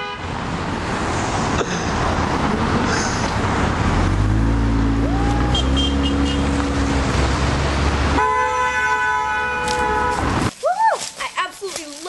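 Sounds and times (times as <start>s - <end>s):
car horn honk: 0.0s - 0.3s, 5.4s - 6.6s, 8.1s - 10.4s
vehicle passing drone: 0.4s - 8.2s.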